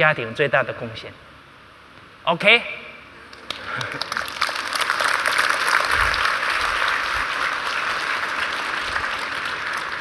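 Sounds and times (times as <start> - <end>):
audience applauding: 3.3 - 10.0.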